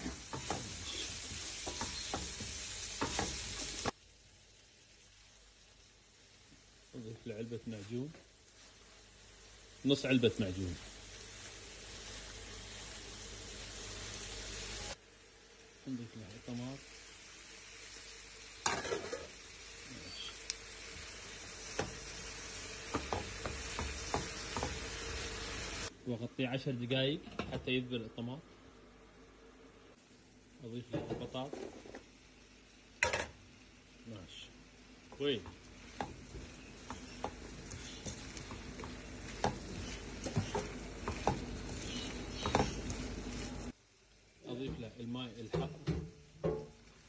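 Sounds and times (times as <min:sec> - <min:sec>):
tomatoes sizzling in a frying pan: 0:00.0 - 0:47.0
spatula stirring: 0:35.2 - 0:43.7.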